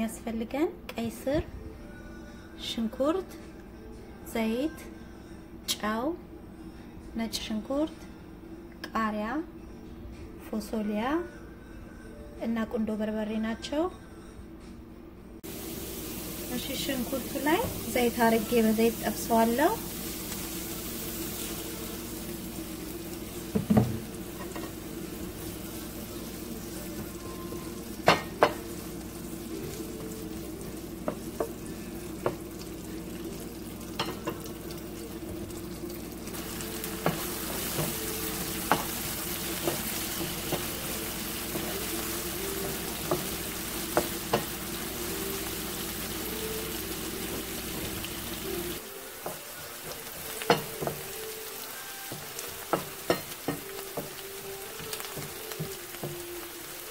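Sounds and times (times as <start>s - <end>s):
onions sizzling in a pan: 15.4s - 56.9s
wooden spoon stirring onions: 15.5s - 56.8s.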